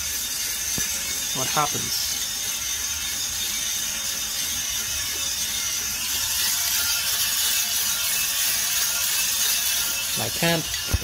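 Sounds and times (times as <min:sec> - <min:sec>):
coffee roaster whirring: 0:00.0 - 0:11.0.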